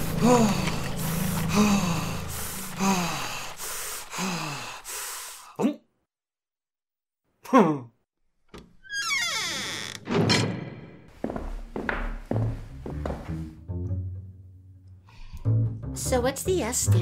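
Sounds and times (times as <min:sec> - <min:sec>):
man gasping: 0:00.1 - 0:05.8.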